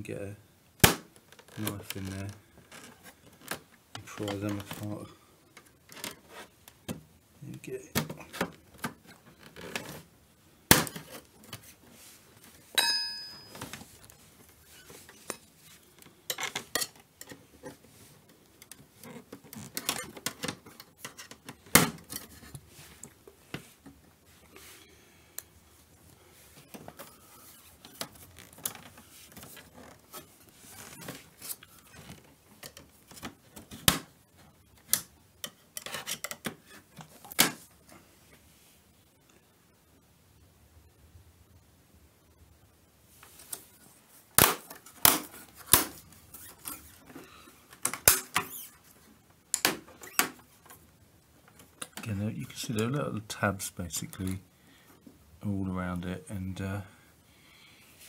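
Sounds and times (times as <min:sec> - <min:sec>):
short ringing clink: 0:12.8 - 0:13.6.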